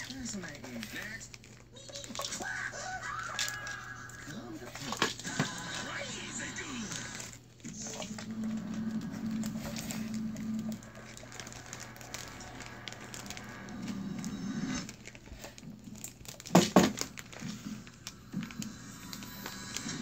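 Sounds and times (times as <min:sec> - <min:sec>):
cat clicking and rustling: 0:00.0 - 0:02.5
steady low hum: 0:03.9 - 0:20.0.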